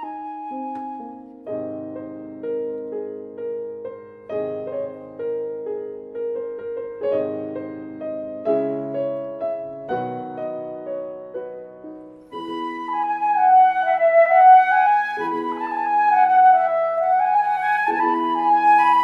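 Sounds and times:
flute melody: 0.0s - 5.3s, 12.2s - 19.0s
piano notes: 0.0s - 19.0s.

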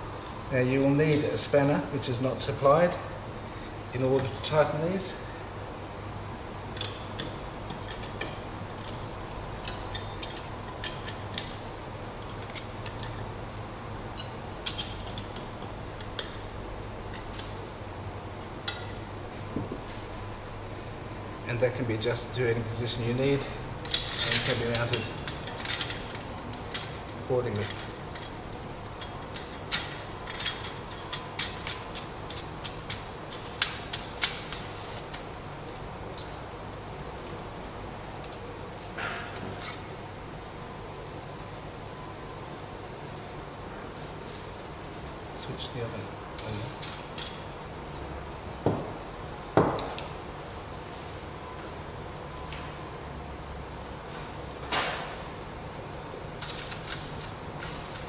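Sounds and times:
spanner clinking on nuts: 6.8s - 9.0s, 9.6s - 13.3s, 14.2s - 16.5s, 23.8s - 36.3s, 46.4s - 47.6s, 56.4s - 58.0s.

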